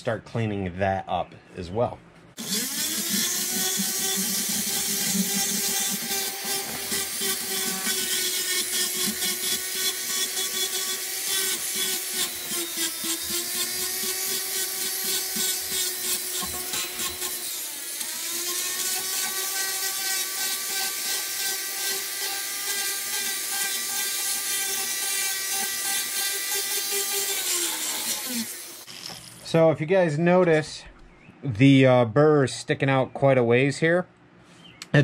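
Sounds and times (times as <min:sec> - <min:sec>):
carbide burr rasping over wood: 0:02.4 - 0:17.6
rotary tool motor whine: 0:02.4 - 0:29.4.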